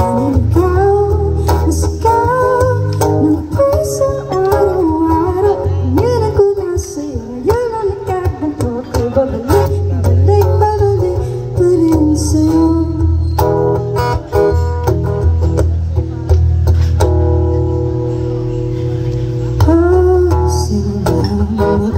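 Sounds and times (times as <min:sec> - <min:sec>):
woman singing a slow ballad: 0:00.0 - 0:13.2, 0:19.6 - 0:21.9
strummed acoustic guitar: 0:00.0 - 0:21.9.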